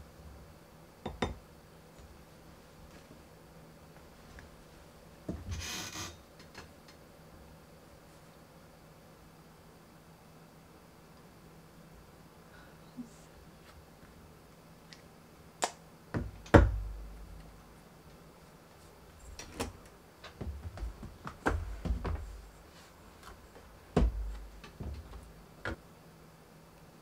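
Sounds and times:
objects knocking on wooden desk: 0:01.1 - 0:01.4.

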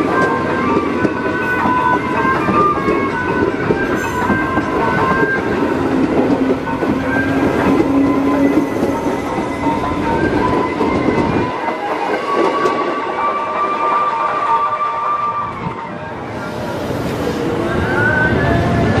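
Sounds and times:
train wheels rumbling: 0:00.0 - 0:19.0
metallic wheel squeal: 0:01.4 - 0:11.8.

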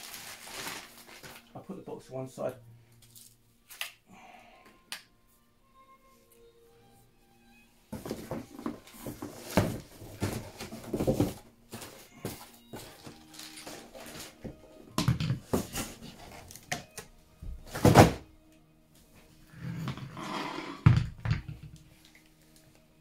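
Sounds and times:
cardboard and plastic rustling: 0:00.0 - 0:01.7, 0:07.9 - 0:16.9, 0:17.5 - 0:18.2.

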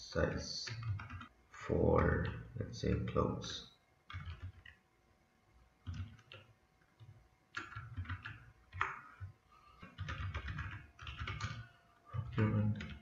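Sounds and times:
keyboard typing: 0:00.6 - 0:01.3, 0:01.9 - 0:03.3, 0:04.1 - 0:04.8, 0:05.8 - 0:13.0.

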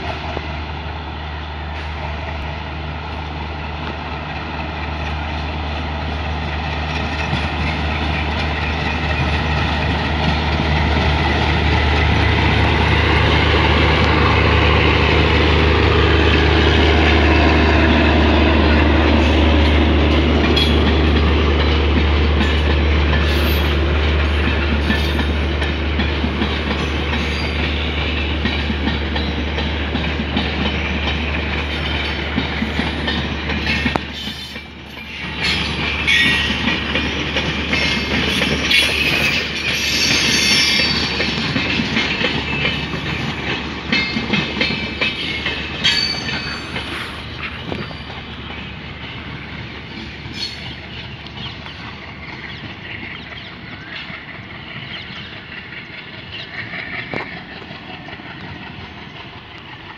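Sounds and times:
train wheels rumbling on rails: 0:00.0 - 0:59.9
high wheel squeal: 0:33.7 - 0:36.8, 0:37.7 - 0:41.4, 0:45.0 - 0:49.4, 0:50.1 - 0:51.9.

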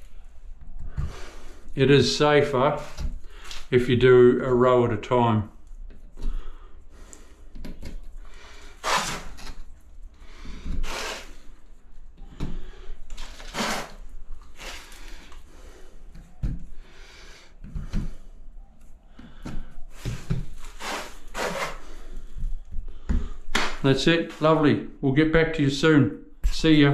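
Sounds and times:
hands scuffing and rustling: 0:17.6 - 0:24.7.

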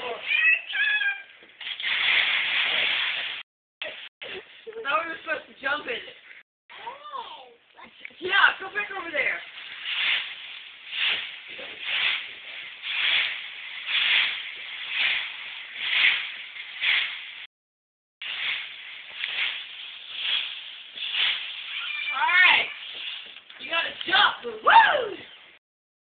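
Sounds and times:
rake scraping dry leaves: 0:01.6 - 0:03.4, 0:08.8 - 0:17.5, 0:18.2 - 0:24.2.

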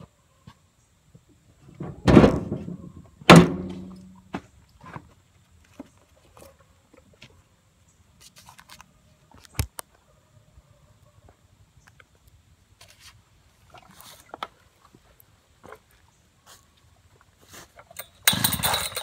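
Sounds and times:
loud thuds: 0:01.8 - 0:04.0.

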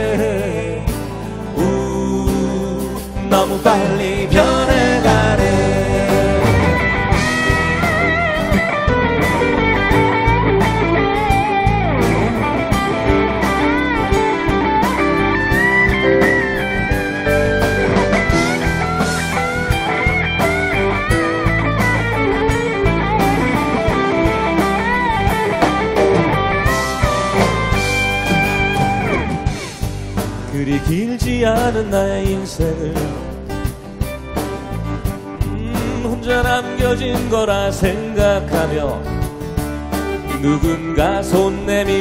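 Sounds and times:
bass: 0:00.0 - 0:42.0
electric guitar: 0:00.0 - 0:42.0
strummed acoustic guitars: 0:00.0 - 0:42.0
steady drum beat: 0:00.1 - 0:42.0
lead melody with vibrato: 0:03.4 - 0:30.6.

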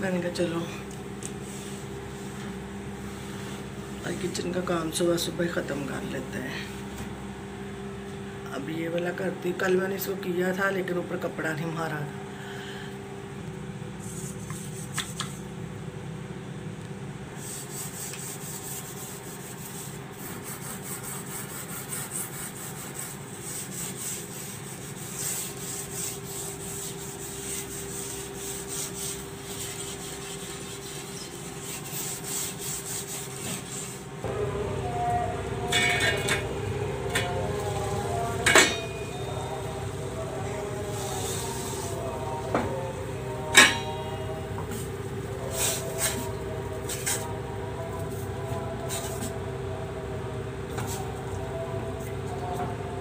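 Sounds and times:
cloth scrubbing wooden cabinet: 0:17.4 - 0:34.1.

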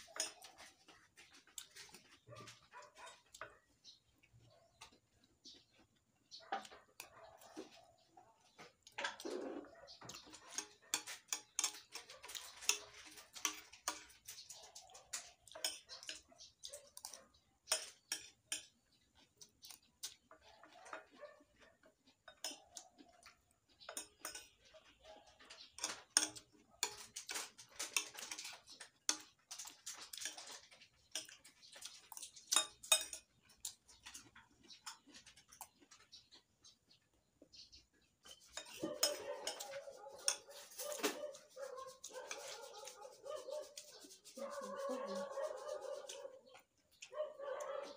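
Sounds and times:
metal spoon scraping ceramic plate: 0:00.0 - 0:00.7, 0:09.1 - 0:14.5, 0:23.8 - 0:24.6, 0:25.6 - 0:33.4, 0:38.2 - 0:41.2.

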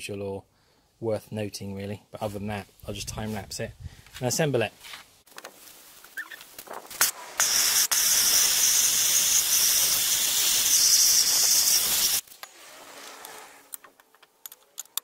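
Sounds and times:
gas torch flame hissing: 0:07.4 - 0:12.2
faint metal part clicks: 0:13.7 - 0:15.0.

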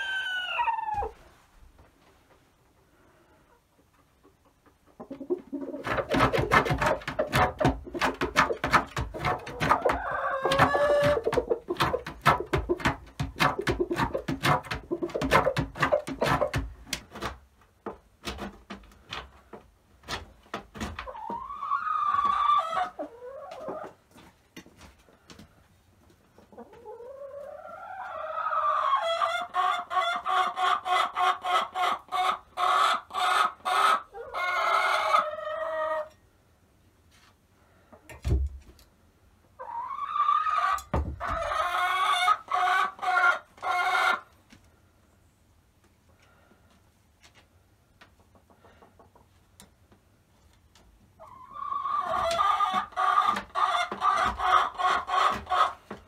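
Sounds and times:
hen clucking and cackling: 0:00.0 - 0:01.2, 0:03.3 - 0:16.6, 0:21.0 - 0:24.0, 0:26.4 - 0:36.2, 0:39.5 - 0:44.3, 0:51.2 - 0:56.0.

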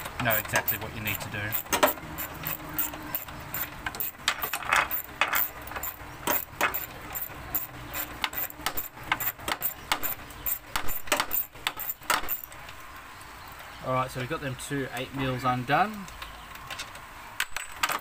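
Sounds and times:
hand ratchet clicking: 0:00.2 - 0:12.4.

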